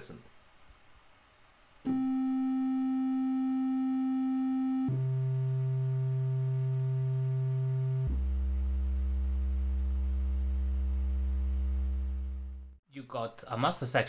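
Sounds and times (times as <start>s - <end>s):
synthesizer low tone: 1.9s - 12.8s.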